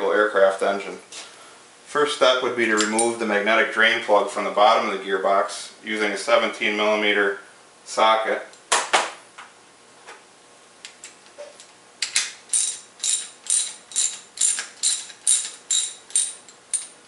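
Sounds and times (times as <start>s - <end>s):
ratchet wrench clicking: 12.1s - 17.0s.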